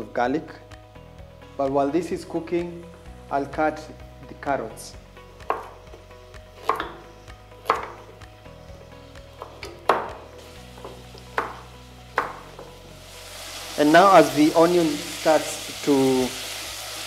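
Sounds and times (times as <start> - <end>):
knife chopping on wooden board: 5.4 - 5.8, 6.6 - 8.1, 9.4 - 10.2, 10.8 - 11.6, 12.2 - 12.4.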